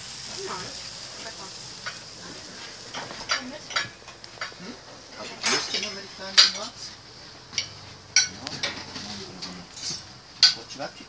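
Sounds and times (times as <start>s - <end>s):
cutlery clinking on metal pot: 2.9s - 4.6s, 5.3s - 6.8s, 7.5s - 10.6s.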